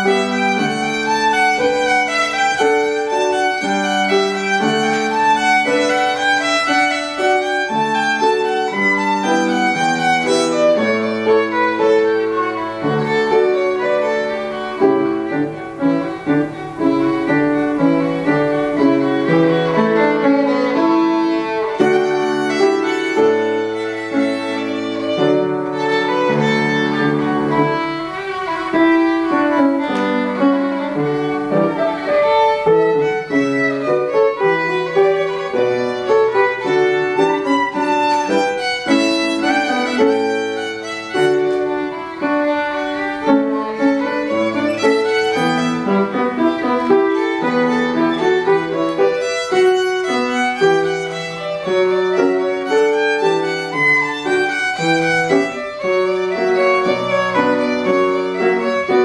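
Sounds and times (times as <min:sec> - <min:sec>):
piano accompaniment: 0:00.0 - 0:59.0
violin solo: 0:00.0 - 0:59.0.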